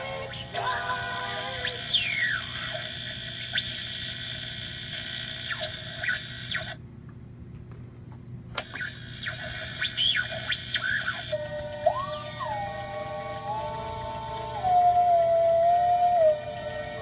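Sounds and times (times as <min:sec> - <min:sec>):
radio static with whistling squeals: 0:00.3 - 0:06.8, 0:08.7 - 0:12.7.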